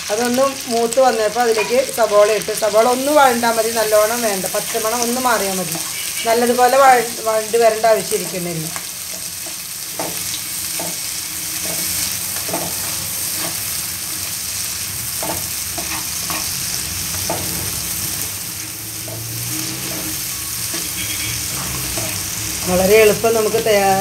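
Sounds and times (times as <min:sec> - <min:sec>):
onion sizzling in oil: 0:00.0 - 0:24.0
spatula scraping a pan: 0:15.2 - 0:18.2, 0:19.0 - 0:22.4.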